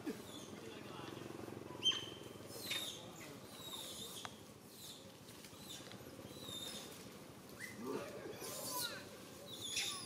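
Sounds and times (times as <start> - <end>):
monkeys squeaking: 8.4 - 10.0.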